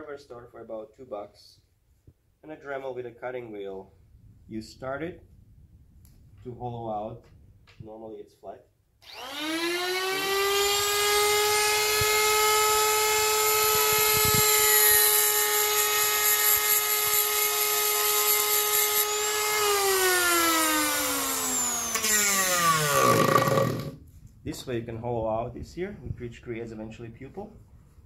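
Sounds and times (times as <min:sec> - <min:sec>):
motor winding down: 0:09.0 - 0:15.4, 0:18.8 - 0:24.0
cutting wheel grinding steel: 0:09.0 - 0:24.0
grinders high-pitched whine: 0:09.0 - 0:24.0.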